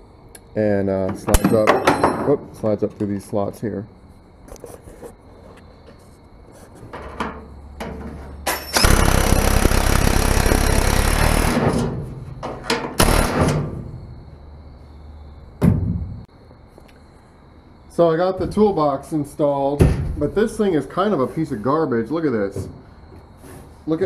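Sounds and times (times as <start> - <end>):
cordless drill running: 8.8 - 11.6.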